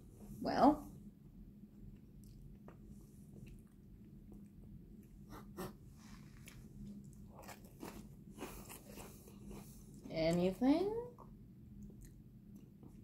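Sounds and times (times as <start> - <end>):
crunching and chewing snacks: 6.3 - 9.9.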